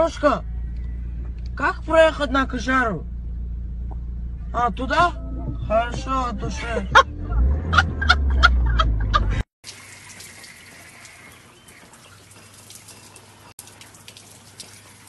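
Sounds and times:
loud low rumble: 0:00.3 - 0:09.4
shower water spraying: 0:09.6 - 0:11.8.

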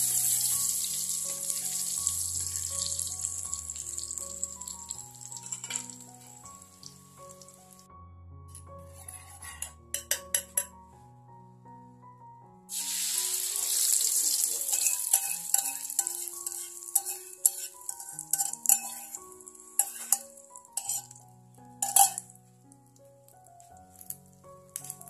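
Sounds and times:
egg sizzling in hot oil: 0:00.0 - 0:07.9, 0:12.7 - 0:21.2, 0:21.8 - 0:23.4
spoon clinking against bowl: 0:10.0 - 0:10.7, 0:14.6 - 0:19.2, 0:19.8 - 0:21.2, 0:21.8 - 0:22.3.

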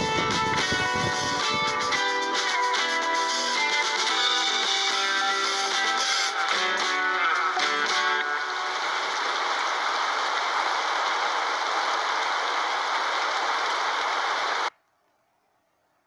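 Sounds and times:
steady rain falling: 0:07.4 - 0:14.7.

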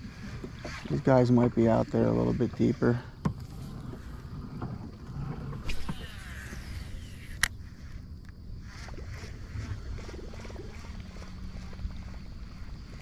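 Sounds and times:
rod and reel handling rumble: 0:00.0 - 0:13.0
sharp click: 0:07.2 - 0:07.6.

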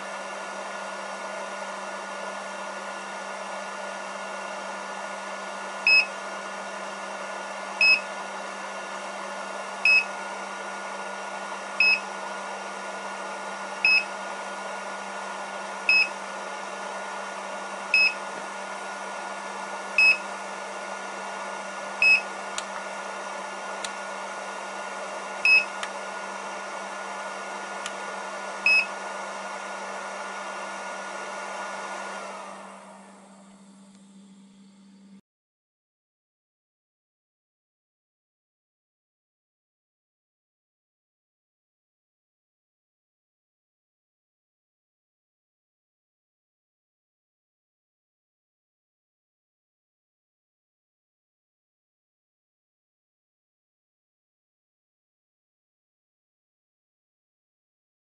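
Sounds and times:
cooling fan running: 0:00.0 - 0:35.2
charger short beeps: 0:05.9 - 0:06.1, 0:07.8 - 0:08.1, 0:09.9 - 0:10.1, 0:11.8 - 0:12.0, 0:13.8 - 0:14.1, 0:15.9 - 0:16.1, 0:18.0 - 0:18.2, 0:20.0 - 0:20.2, 0:22.0 - 0:22.3, 0:25.4 - 0:25.7, 0:28.7 - 0:28.9.

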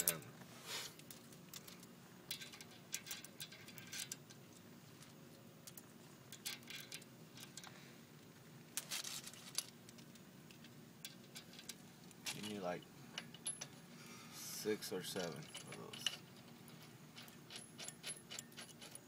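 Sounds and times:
small metal tools clinking: 0:00.0 - 0:00.3, 0:08.8 - 0:19.0.

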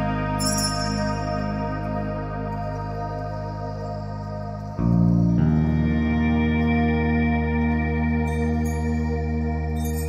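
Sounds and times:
bright high shimmer: 0:00.0 - 0:04.7
soft instrumental music: 0:00.0 - 0:10.0.

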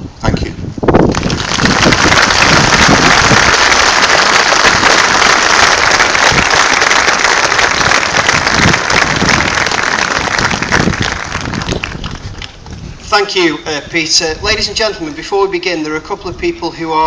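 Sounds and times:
crowd applauding: 0:01.1 - 0:12.7.

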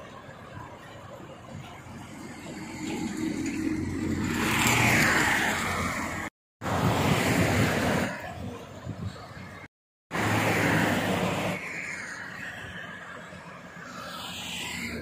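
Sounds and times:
vehicle passing by: 0:02.0 - 0:08.4.

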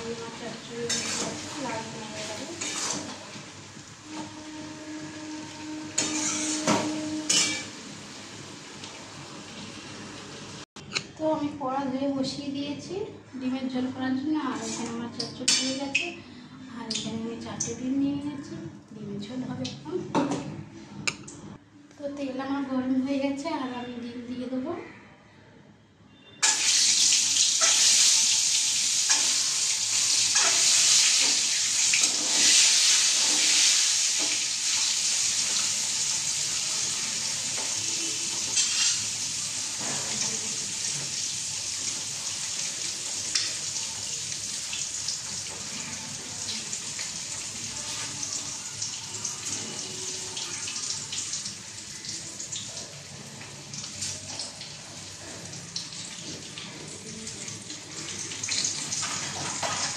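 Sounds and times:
eggs sizzling in hot oil: 0:00.0 - 0:10.7, 0:26.4 - 0:56.5
crackling oil spatters: 0:26.4 - 0:37.8.

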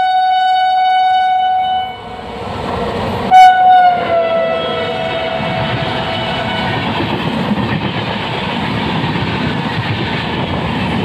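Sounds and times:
locomotive horn blast: 0:00.0 - 0:02.1, 0:03.3 - 0:06.9
train coaches rumbling and clattering: 0:01.9 - 0:11.0.

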